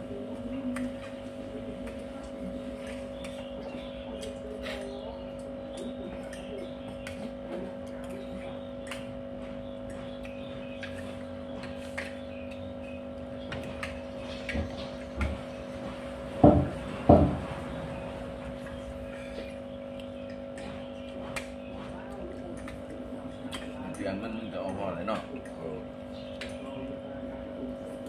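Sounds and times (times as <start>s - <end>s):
steady hum: 0.0s - 28.0s.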